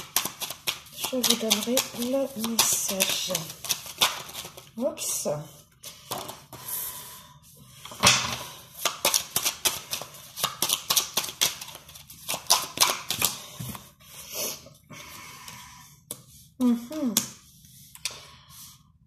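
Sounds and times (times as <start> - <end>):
cards being shuffled: 0.0 - 4.7, 8.3 - 13.4.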